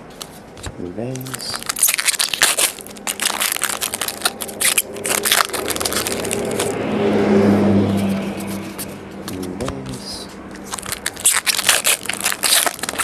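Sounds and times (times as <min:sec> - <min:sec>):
low hum with rubbing noise: 0:00.0 - 0:13.0
foil wrappers crinkling: 0:00.2 - 0:06.8, 0:10.6 - 0:13.0.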